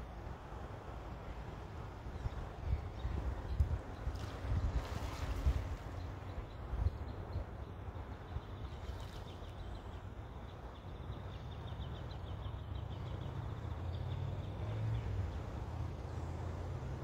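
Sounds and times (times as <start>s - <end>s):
wind on microphone: 2.1s - 7.4s.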